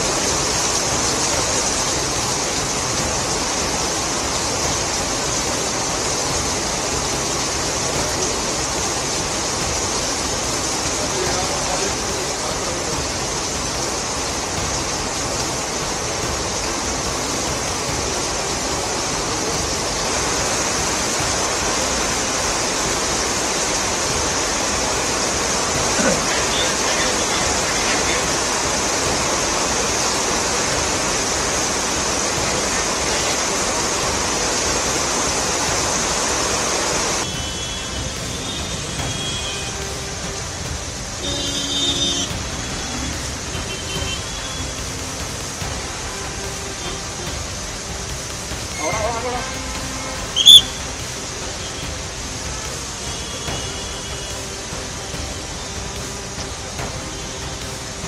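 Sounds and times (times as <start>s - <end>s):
heavy rain: 0.0s - 58.0s
traffic on wet street: 0.0s - 58.0s
water splashing off roof: 0.0s - 58.0s.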